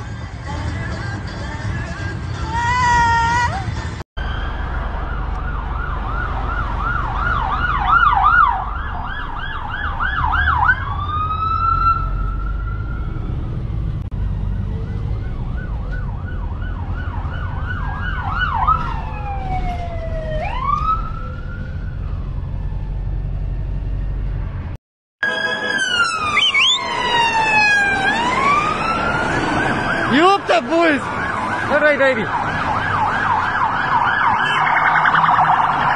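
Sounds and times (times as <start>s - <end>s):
low rumble of vehicle noise: 0.0s - 24.8s
police siren yelp and wail: 4.2s - 24.4s, 25.2s - 35.9s.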